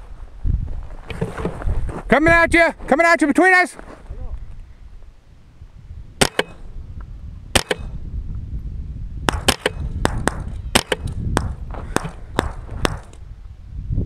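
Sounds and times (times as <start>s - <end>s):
rifle shots cracking: 6.2s - 6.8s, 7.6s - 8.0s, 9.3s - 13.2s.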